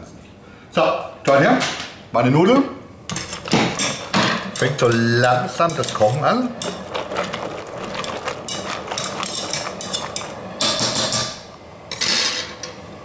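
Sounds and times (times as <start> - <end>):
tongs scraping metal pot: 3.1 - 11.3.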